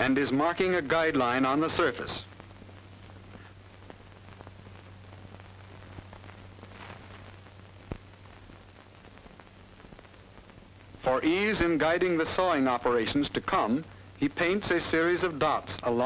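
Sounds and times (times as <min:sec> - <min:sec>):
faint crackles: 0:00.0 - 0:16.0
film soundtrack hiss: 0:00.0 - 0:16.0
low hum: 0:00.0 - 0:16.0.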